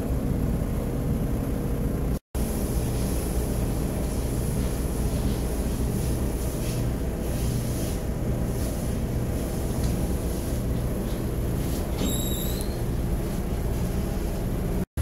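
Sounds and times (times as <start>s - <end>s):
ventilation fan rumbling: 0.0s - 14.9s
high-pitched squeak: 12.0s - 12.8s.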